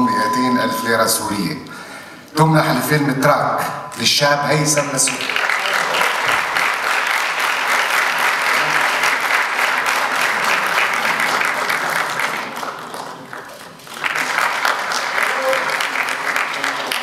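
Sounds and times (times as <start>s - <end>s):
audience applauding: 4.9s - 17.0s.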